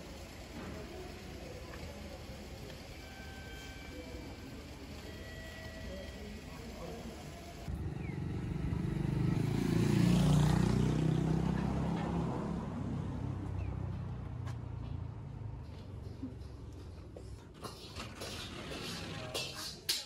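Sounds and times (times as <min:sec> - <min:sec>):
vehicle passing by: 0:07.7 - 0:16.2.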